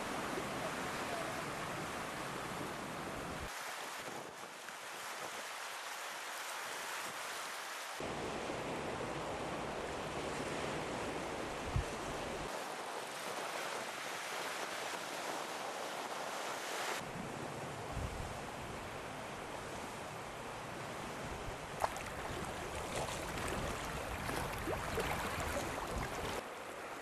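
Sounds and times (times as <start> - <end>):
wind: 0.0 - 27.0
small waves washing on stony shore: 11.8 - 17.0, 21.0 - 26.5
wind buffeting microphone: 21.2 - 26.4.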